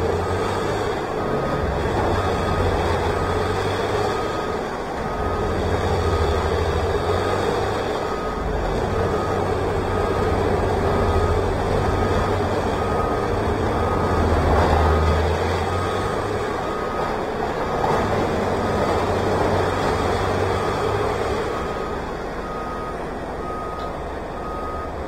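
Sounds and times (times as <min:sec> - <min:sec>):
heavy machinery running: 0:00.0 - 0:25.0
backup alarm beeping: 0:08.0 - 0:17.2, 0:20.4 - 0:25.0.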